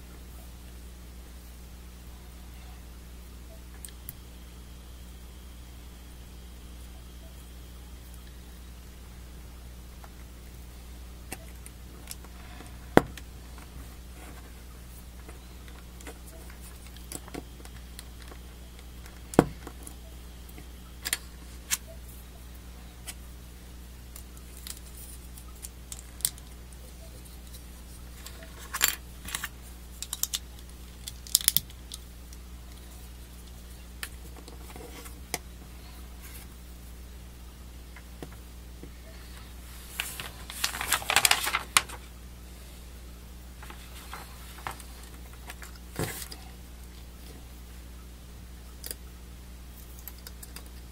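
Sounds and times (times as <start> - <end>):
low steady hum: 0.0 - 50.9
plastic parts clicking and snapping: 28.2 - 32.0.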